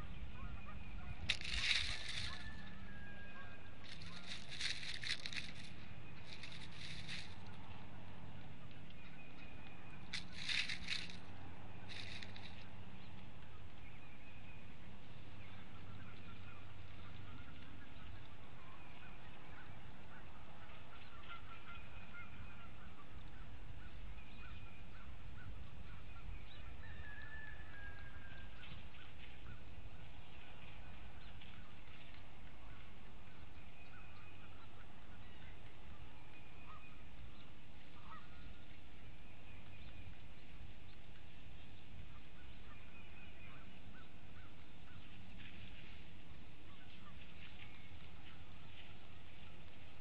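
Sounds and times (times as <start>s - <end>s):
steady low rumble: 0.0s - 21.2s
distant birds calling: 0.0s - 50.0s.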